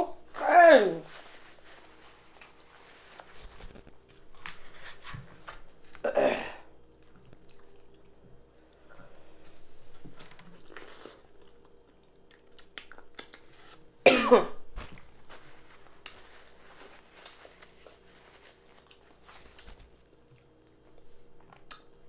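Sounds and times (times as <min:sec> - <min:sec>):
person coughing: 0:06.0 - 0:06.7, 0:14.0 - 0:14.7.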